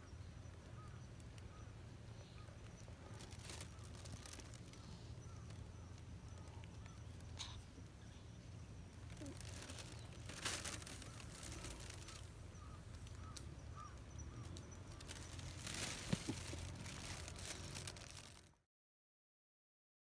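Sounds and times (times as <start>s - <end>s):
rustling bursts: 3.0s - 5.2s, 9.0s - 13.2s, 14.8s - 18.5s.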